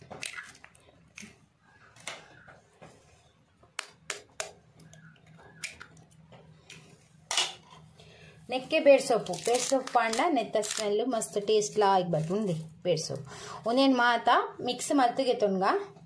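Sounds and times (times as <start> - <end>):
eggshells cracking: 0.0 - 1.4.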